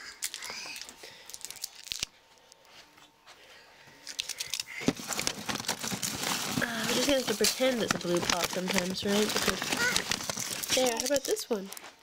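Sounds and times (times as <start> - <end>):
rummaging rustling: 4.8 - 12.0.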